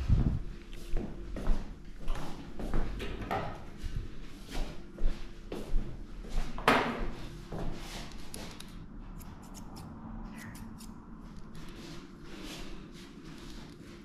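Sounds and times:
grooming scissors snipping: 0:08.5 - 0:10.9.

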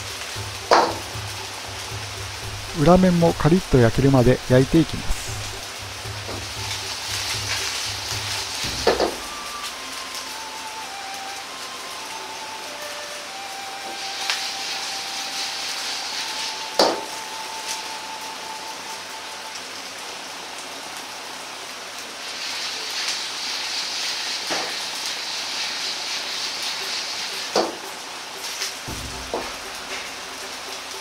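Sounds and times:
wok knocking on stove: 0:00.0 - 0:02.8, 0:05.6 - 0:09.4, 0:16.8 - 0:17.1, 0:28.9 - 0:30.4
noodles sizzling in a wok: 0:00.0 - 0:31.0.

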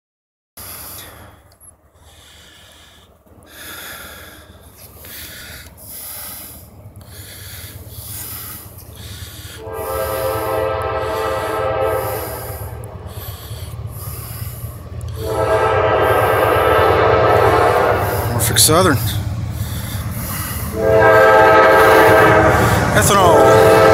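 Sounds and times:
railroad crossing bells clanging: 0:06.6 - 0:23.9
locomotive air horn: 0:08.3 - 0:14.2, 0:15.1 - 0:19.1, 0:20.2 - 0:23.9.

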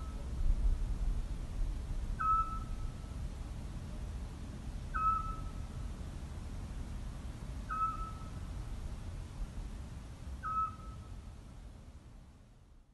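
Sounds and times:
low steady rumble: 0:00.0 - 0:12.9
owl whistled call: 0:02.2 - 0:02.8, 0:04.9 - 0:05.5, 0:07.7 - 0:08.4, 0:10.4 - 0:11.1.

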